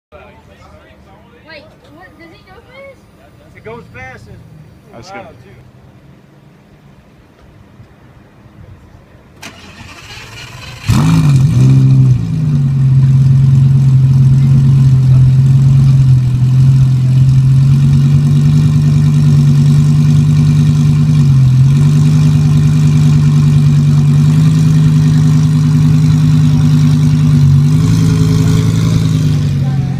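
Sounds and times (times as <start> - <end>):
car engine starting and idling: 9.2 - 29.9.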